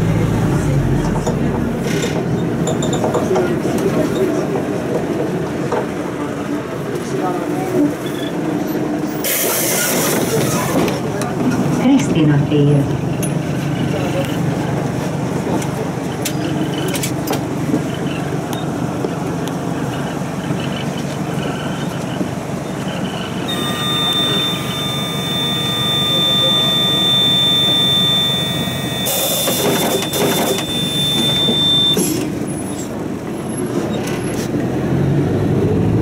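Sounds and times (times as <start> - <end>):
bus engine rumble: 0.0 - 36.0
high steady tone: 23.5 - 32.0.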